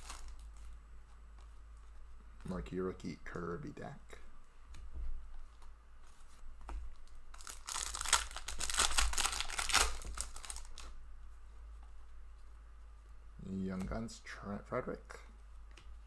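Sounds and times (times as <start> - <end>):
foil wrapper tearing and crinkling: 0.0 - 0.6, 7.4 - 10.9.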